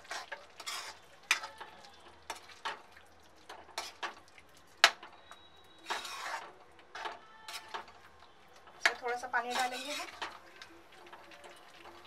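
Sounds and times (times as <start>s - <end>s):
metal spatula scraping pan: 0.0s - 1.7s, 3.6s - 4.2s, 5.8s - 8.0s, 8.7s - 10.4s.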